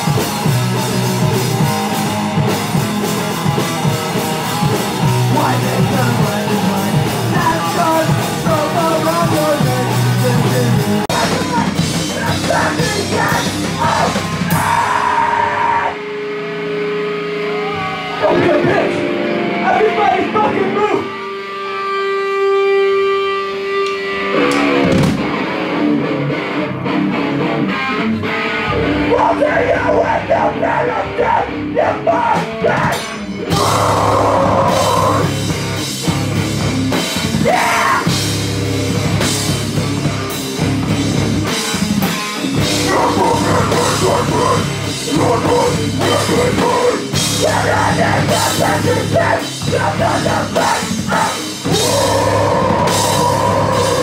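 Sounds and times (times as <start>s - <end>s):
drum kit: 0.0s - 16.0s, 23.8s - 26.3s, 31.9s - 54.0s
electric bass: 0.0s - 54.0s
electric guitar: 0.0s - 54.0s.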